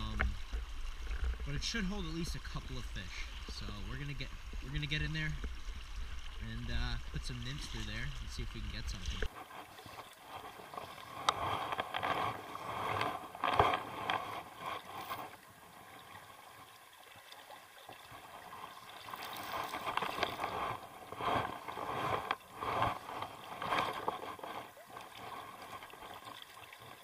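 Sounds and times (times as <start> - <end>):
water splashing around wading legs: 0.0 - 27.0.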